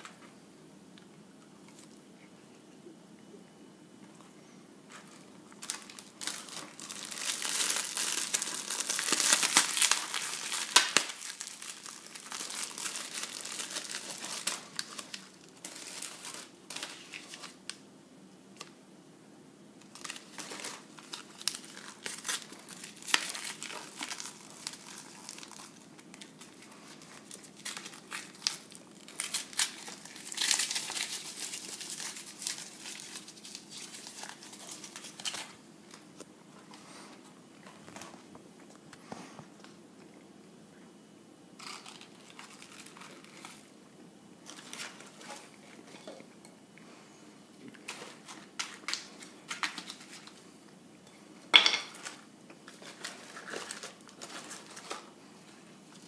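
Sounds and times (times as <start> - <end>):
packaging crinkling and tearing: 4.9 - 17.8, 19.8 - 36.1, 41.6 - 43.8, 44.4 - 46.0, 47.7 - 50.4, 51.9 - 55.2.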